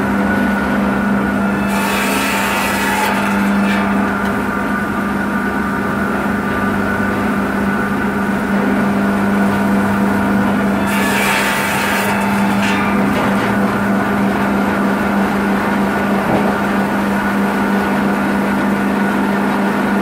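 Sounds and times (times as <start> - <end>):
circular saw humming: 0.0 - 20.0
saw cutting through branch: 1.6 - 4.4.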